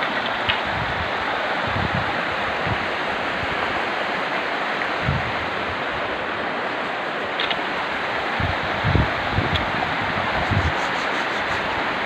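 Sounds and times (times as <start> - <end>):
shallow river water rushing: 0.0 - 12.0.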